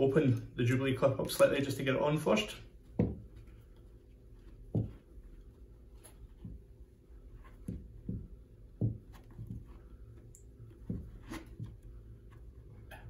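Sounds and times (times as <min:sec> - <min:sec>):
soft knocks: 0:02.9 - 0:03.4, 0:07.5 - 0:09.8, 0:10.8 - 0:11.9.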